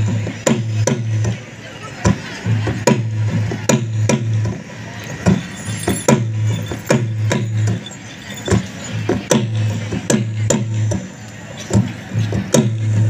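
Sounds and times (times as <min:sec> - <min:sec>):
drum-led folk music: 0:00.0 - 0:13.0
sharp drum strikes: 0:02.0 - 0:07.8
low ringing tone: 0:05.0 - 0:09.0.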